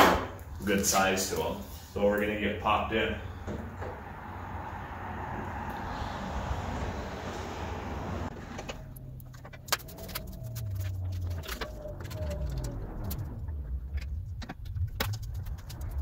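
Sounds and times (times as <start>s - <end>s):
low hum: 3.2s - 16.0s.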